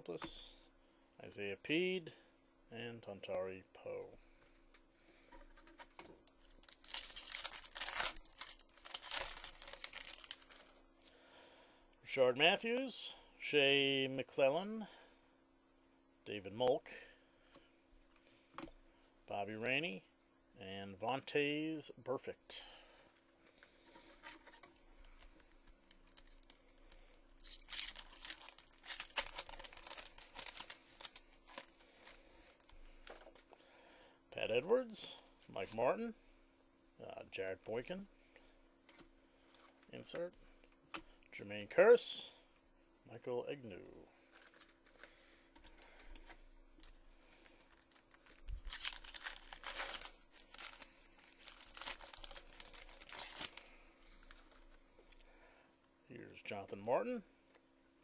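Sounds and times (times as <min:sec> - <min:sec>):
plastic wrapper crinkling: 0:05.7 - 0:10.8, 0:23.6 - 0:33.5, 0:44.2 - 0:54.8.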